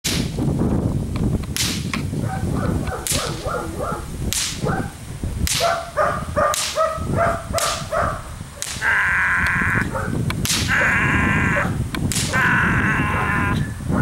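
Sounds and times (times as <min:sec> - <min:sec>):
whip cracking: 0:00.1 - 0:00.4, 0:01.5 - 0:02.1, 0:02.9 - 0:03.4, 0:04.3 - 0:04.8, 0:05.4 - 0:05.9, 0:06.5 - 0:06.9, 0:07.6 - 0:07.9, 0:08.6 - 0:08.9, 0:10.4 - 0:10.8, 0:12.0 - 0:12.4
dog barking: 0:02.2 - 0:05.0, 0:05.6 - 0:08.3, 0:09.8 - 0:11.8, 0:13.0 - 0:14.0.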